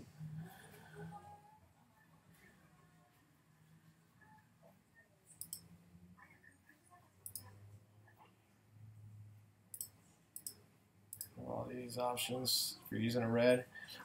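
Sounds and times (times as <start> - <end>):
faint computer mouse clicks: 5.3 - 5.7, 7.2 - 7.5, 9.7 - 11.3.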